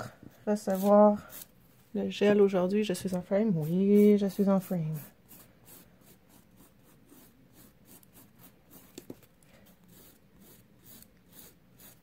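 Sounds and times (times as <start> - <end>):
nail file rasping: 3.6 - 12.0.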